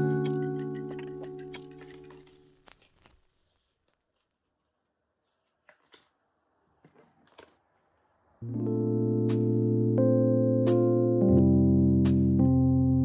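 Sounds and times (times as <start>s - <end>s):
background music: 0.0s - 2.6s, 8.4s - 13.0s
paper and cardboard handling clicks: 0.0s - 4.4s.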